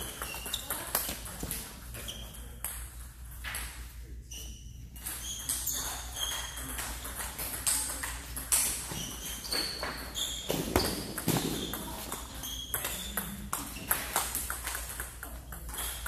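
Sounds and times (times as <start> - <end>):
table tennis balls clicking: 0.0 - 3.8, 5.0 - 16.0.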